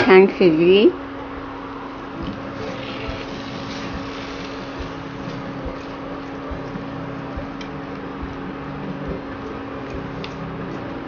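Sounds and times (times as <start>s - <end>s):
cooling fan humming: 0.0s - 11.0s
spatula stirring food in a pan: 2.5s - 10.9s.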